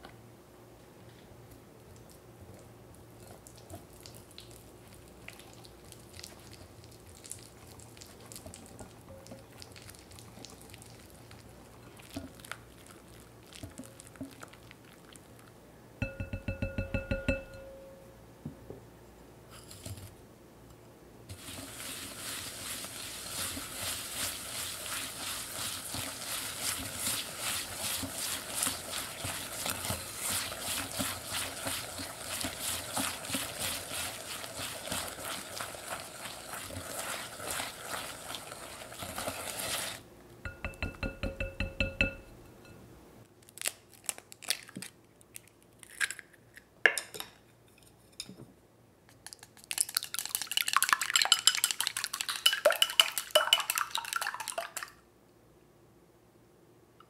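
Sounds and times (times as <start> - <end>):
whisk knocking on bowl: 16.0 - 17.7, 23.4 - 38.2, 40.5 - 42.3
whisk scraping in glass bowl: 21.4 - 42.2, 50.5 - 54.2.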